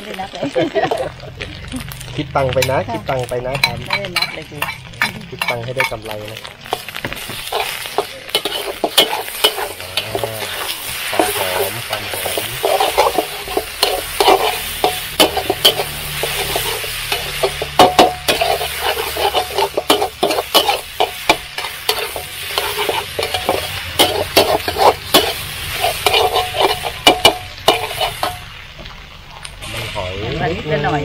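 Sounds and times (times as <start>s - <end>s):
sizzling in hot pan: 0.0s - 31.0s
spatula scraping a wok: 0.8s - 28.7s.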